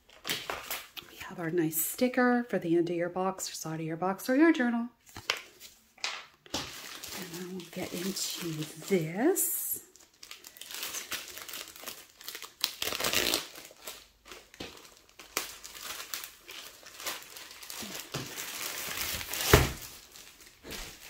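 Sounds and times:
plastic sleeve crinkling: 6.4s - 21.0s.

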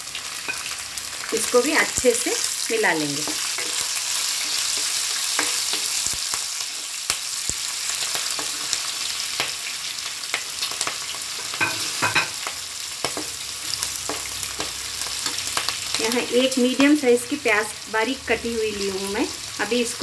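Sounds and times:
food sizzling in hot oil: 0.0s - 20.0s.

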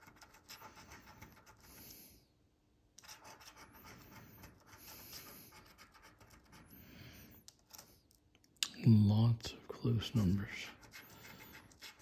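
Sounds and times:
coin scratching lottery ticket: 0.0s - 1.8s, 3.0s - 6.7s, 10.6s - 12.0s.

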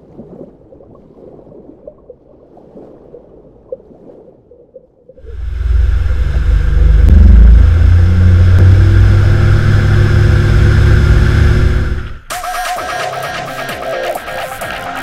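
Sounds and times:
motorboat engine drone: 5.2s - 12.3s.

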